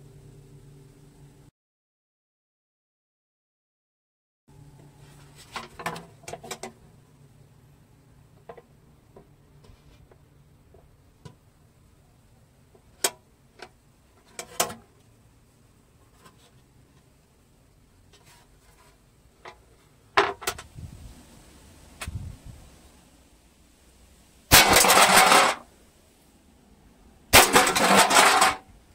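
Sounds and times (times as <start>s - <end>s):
pan clattering on tiled floor: 24.5s - 25.6s, 27.4s - 28.6s
metal pan clicks and knocks: 24.6s - 25.6s, 27.4s - 28.6s.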